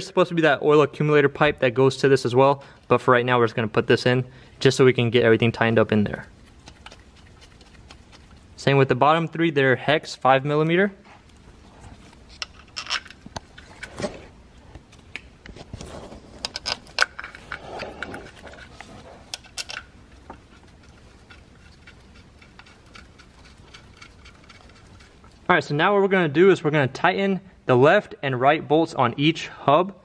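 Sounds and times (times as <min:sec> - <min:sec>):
small bolts and washers clinking: 0:12.4 - 0:13.9, 0:16.4 - 0:25.4.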